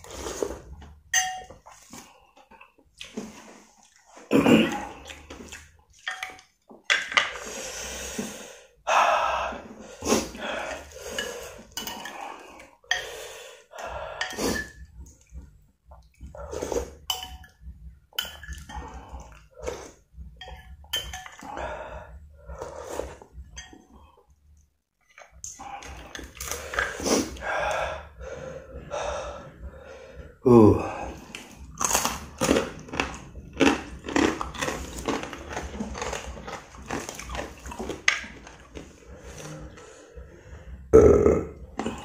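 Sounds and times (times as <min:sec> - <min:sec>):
slurping: 0:00.0 - 0:01.0, 0:07.3 - 0:24.2, 0:25.1 - 0:42.0
spoon clinking in ceramic bowl: 0:01.1 - 0:01.6
mouth eating sounds: 0:29.0 - 0:40.0, 0:40.7 - 0:42.0.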